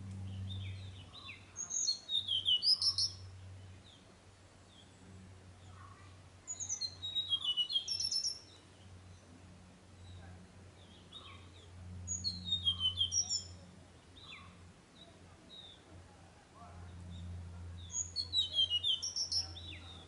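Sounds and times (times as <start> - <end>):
flycatcher singing: 0.2 - 4.0, 5.7 - 9.2, 10.1 - 15.8, 17.8 - 20.0.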